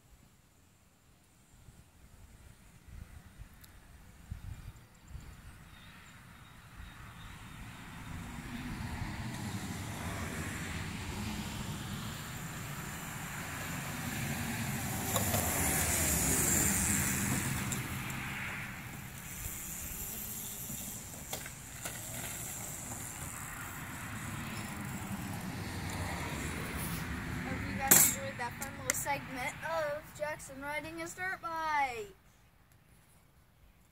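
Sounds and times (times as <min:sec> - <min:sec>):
electric dirt bike on gravel: 0:08.8 - 0:28.0.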